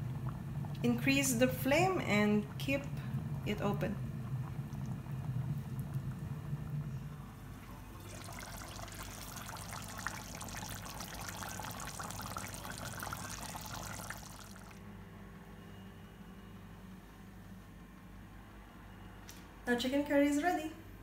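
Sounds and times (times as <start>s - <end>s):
curry boiling with bursting bubbles: 0.0s - 14.9s
steady low hum: 0.0s - 19.2s.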